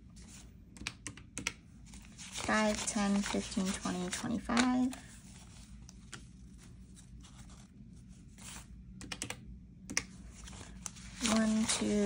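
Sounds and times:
paper banknotes rustling: 1.8 - 8.7, 10.2 - 12.0.

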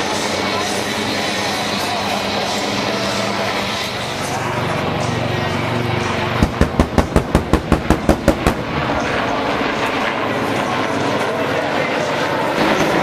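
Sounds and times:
helicopter flying by: 0.0 - 13.0
sharp rapid bangs: 6.4 - 9.0.

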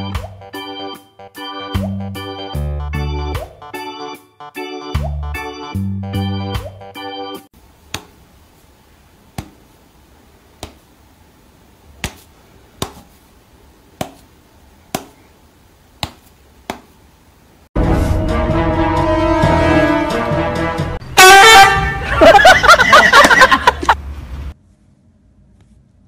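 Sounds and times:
loud music: 17.8 - 22.3.

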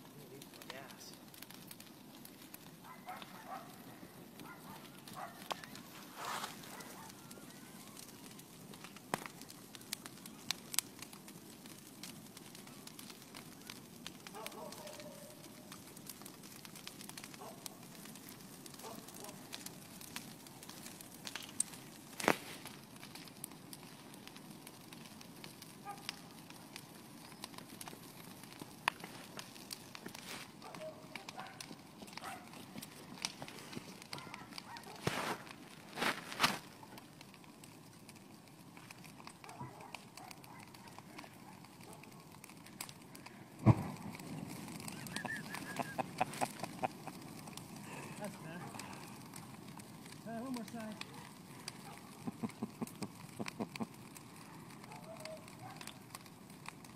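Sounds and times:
bonfire crackling and popping: 0.0 - 56.9
loud sharp pop: 43.6 - 44.1.

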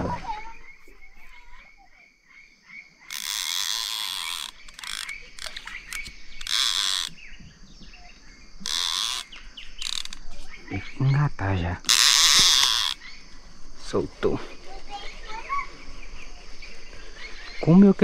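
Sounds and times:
fishing reel ratcheting whirr: 3.1 - 7.2, 8.6 - 10.3, 11.9 - 13.0.

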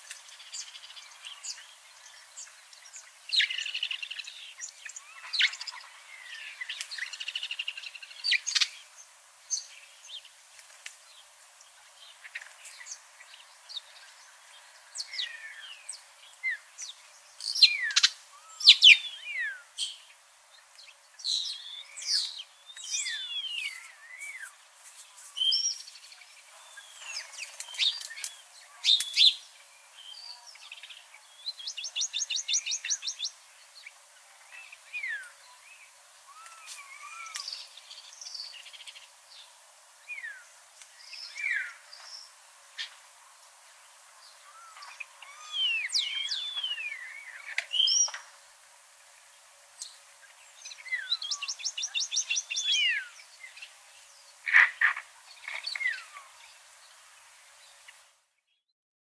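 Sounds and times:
songbirds singing: 0.0 - 58.6
bird trill: 17.5 - 20.0.

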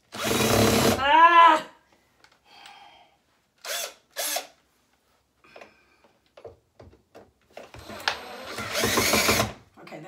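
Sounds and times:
cordless drill whirring: 0.1 - 1.0, 3.6 - 4.6, 7.8 - 9.6.

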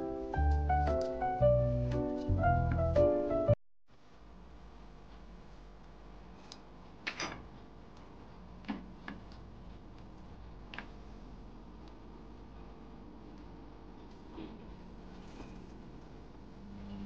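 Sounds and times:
low steady hum: 3.9 - 17.0.

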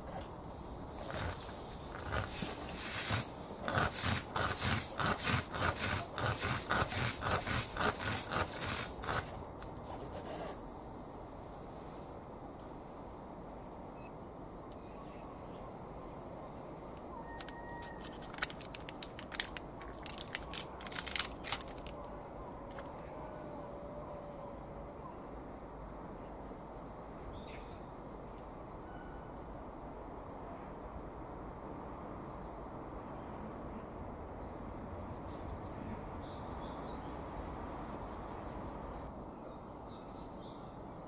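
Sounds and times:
faint bird chirps: 13.8 - 18.2
sharp clicks and ticks: 17.4 - 22.0.

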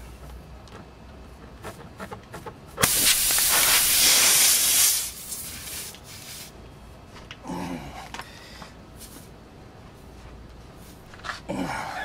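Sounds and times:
air hissing from a tire: 2.8 - 6.6.

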